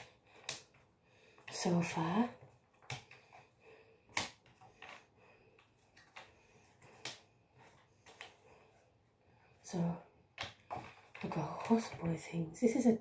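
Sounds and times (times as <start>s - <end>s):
jigsaw pieces clicking: 0.0s - 0.8s.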